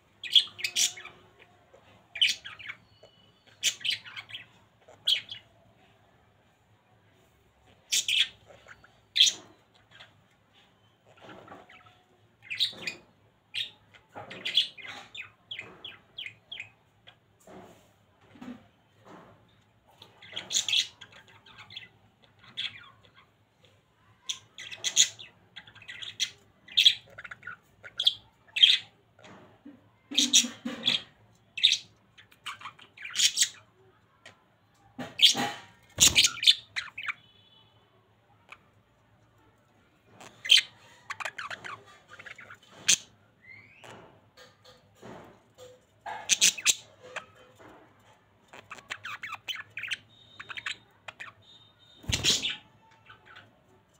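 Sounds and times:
budgerigars chirping and squawking: 0.2s - 5.5s, 7.6s - 17.2s, 19.9s - 23.3s, 24.2s - 29.4s, 30.0s - 33.6s, 35.0s - 37.5s, 40.2s - 53.5s.

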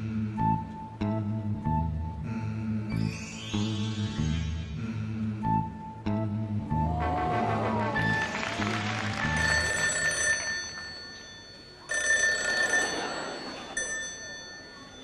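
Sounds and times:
background music: 0.0s - 10.8s
bell ringing: 8.9s - 15.0s.

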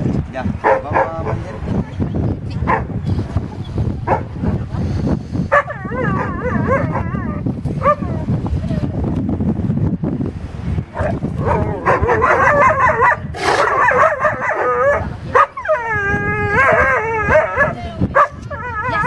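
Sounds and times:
dogs barking: 0.6s - 1.8s, 2.6s - 3.0s, 4.0s - 4.7s, 5.5s - 8.2s, 10.9s - 19.0s
dogs whining and howling: 5.5s - 8.2s, 11.0s - 17.8s, 18.4s - 19.0s.

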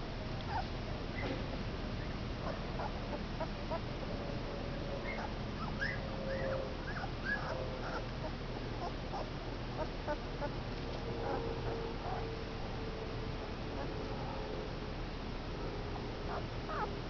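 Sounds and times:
puppies whimpering: 0.5s - 0.7s, 2.0s - 3.8s, 5.0s - 10.6s, 16.3s - 16.9s
faint puppy squeaks: 0.5s - 1.3s, 5.0s - 10.5s, 16.3s - 16.9s.

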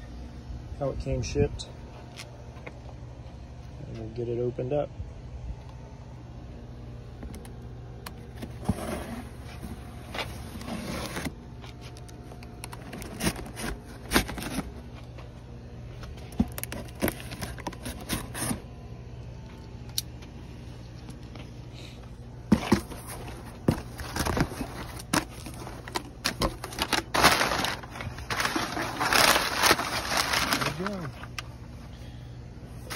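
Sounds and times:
steady low hum: 0.0s - 32.9s
cardboard rustling: 8.1s - 15.2s, 16.0s - 18.7s, 22.5s - 31.4s.

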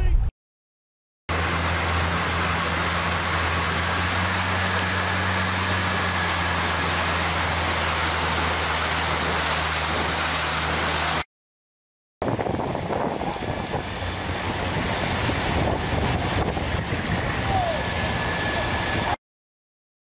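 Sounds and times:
motorboat engine running: 1.3s - 11.2s, 12.2s - 19.2s
wind and water rushing: 1.3s - 11.2s, 12.2s - 19.2s.

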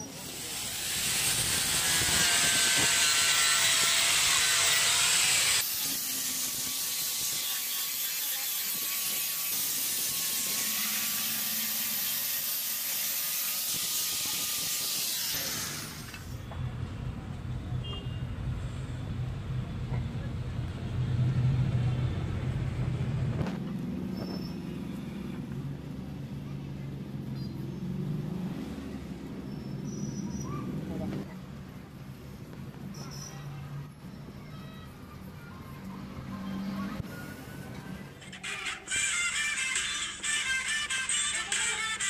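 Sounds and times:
disc grinding steel: 0.2s - 16.0s.

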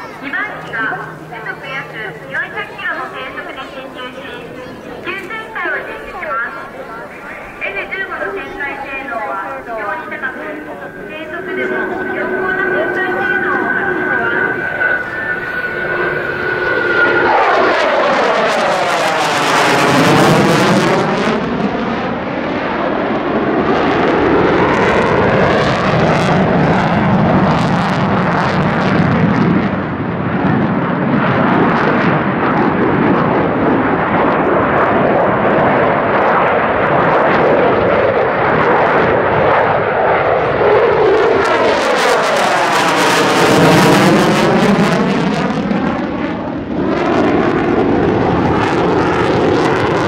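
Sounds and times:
jet engines roaring overhead: 0.0s - 50.0s.

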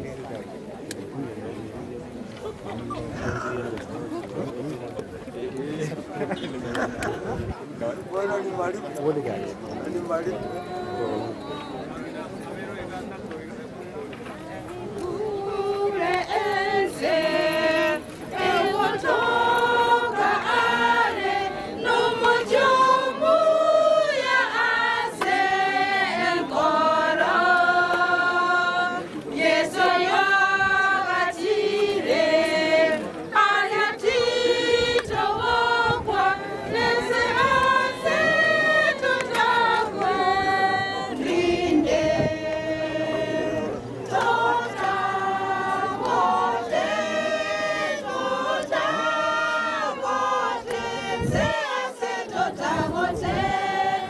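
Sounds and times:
choir singing unaccompanied: 9.7s - 12.8s, 14.4s - 54.0s.

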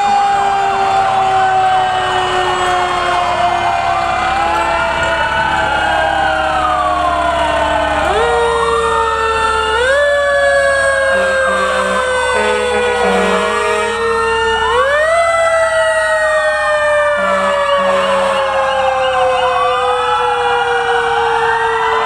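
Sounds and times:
fire truck sirens wailing: 0.0s - 22.0s
warbling siren: 0.0s - 22.0s
low horn blasts: 11.0s - 14.2s, 17.1s - 18.6s.

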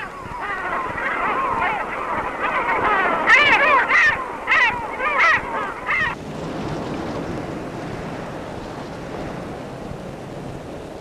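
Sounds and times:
gulls calling: 0.0s - 6.2s
sea surf: 0.0s - 11.0s
wind: 0.0s - 11.0s.

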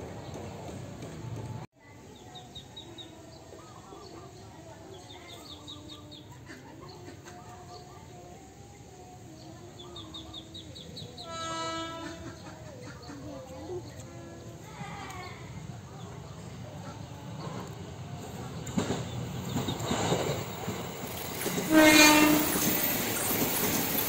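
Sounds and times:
train horn blast: 11.2s - 12.4s, 21.4s - 22.9s.

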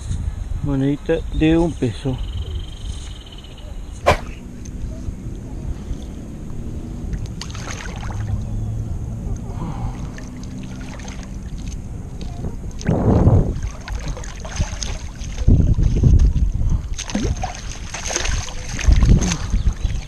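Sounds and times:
wind buffeting microphone: 11.3s - 20.0s.

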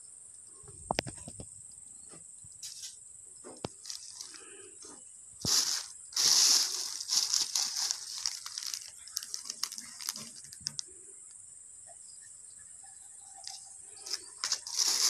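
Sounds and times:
plastic bag rustling: 3.8s - 4.5s, 5.4s - 10.8s, 14.0s - 15.0s.

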